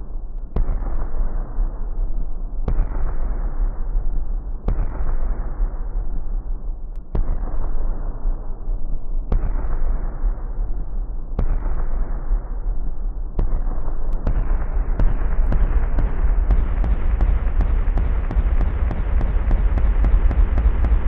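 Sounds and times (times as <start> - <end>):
steady low hum: 10.5 - 21.0.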